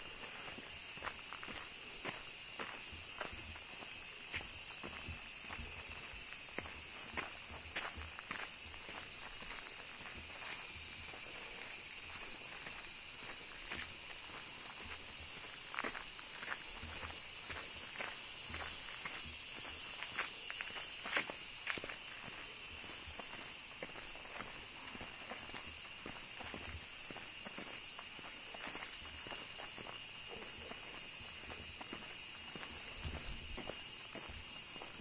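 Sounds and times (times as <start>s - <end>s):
cicadas chorus: 0.0s - 35.0s
footsteps on a path: 0.0s - 35.0s.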